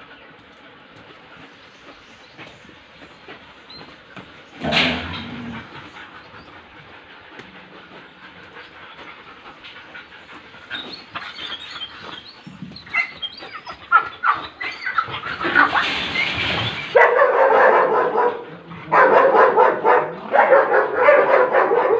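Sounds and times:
dogs barking: 0:04.6 - 0:15.9, 0:16.9 - 0:21.9
dogs whining: 0:04.6 - 0:17.0.

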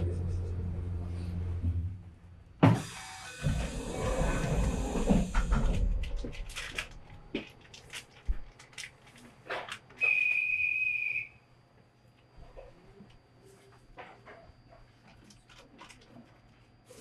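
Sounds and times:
whistle blown: 0:10.0 - 0:11.4.

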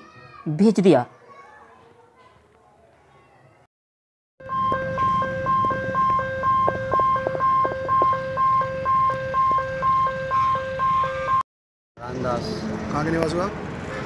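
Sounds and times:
electronic two-tone alarm: 0:04.4 - 0:11.4.

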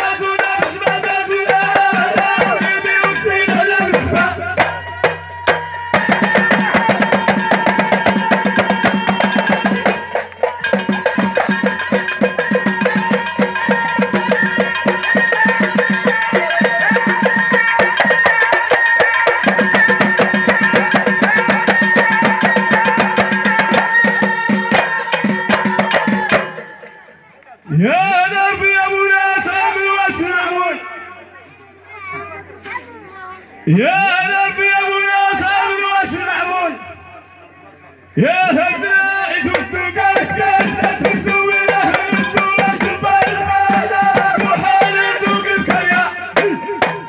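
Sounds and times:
hand drums beating fast rhythm: 0:00.0 - 0:26.8, 0:39.5 - 0:47.0
person singing over loudspeakers: 0:00.0 - 0:32.0, 0:33.6 - 0:47.0.

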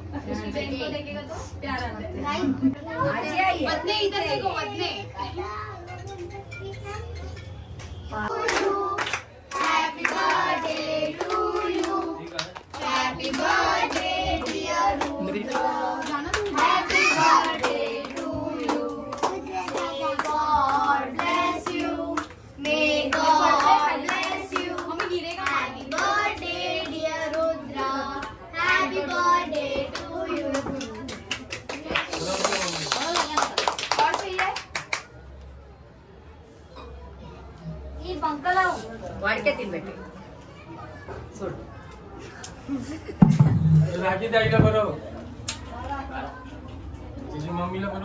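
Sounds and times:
group singing: 0:08.1 - 0:31.1
hand clapping: 0:29.9 - 0:35.1.

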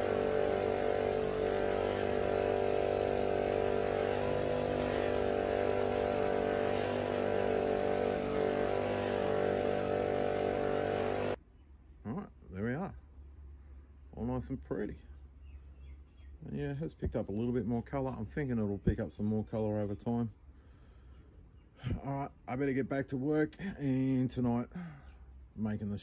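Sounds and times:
bench grinder running: 0:00.0 - 0:11.4.

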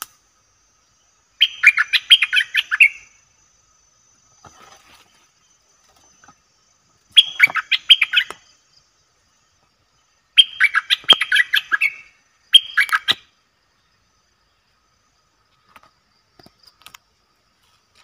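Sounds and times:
bird chattering song: 0:01.4 - 0:03.2, 0:07.1 - 0:09.0, 0:10.0 - 0:13.3.

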